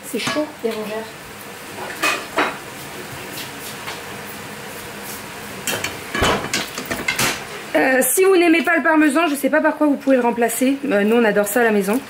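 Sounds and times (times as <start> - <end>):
food sizzling in a pan: 0.0 - 12.0
utensils clinking against dishes: 1.8 - 2.6, 5.6 - 7.5.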